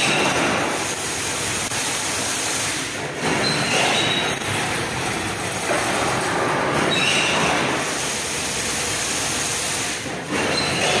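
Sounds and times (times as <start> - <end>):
machine metallic clatter: 0.0 - 11.0.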